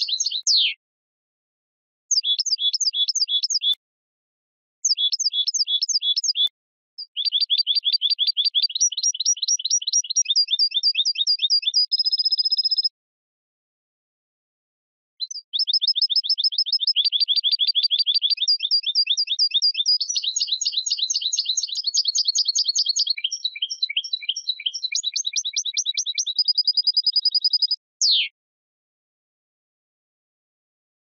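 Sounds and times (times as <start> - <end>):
goldfinch singing: 0.0 - 0.8, 2.1 - 3.8, 4.8 - 12.9, 15.2 - 28.3.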